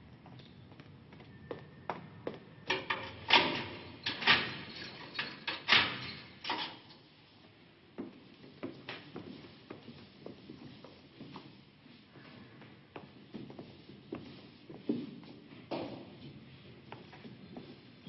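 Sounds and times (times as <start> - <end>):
metal gate clanking: 2.7 - 6.9.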